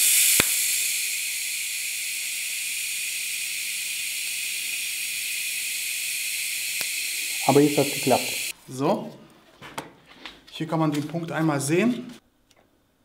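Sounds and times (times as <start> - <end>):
welding arc hissing: 0.0 - 8.6
sharp click: 0.2 - 0.8.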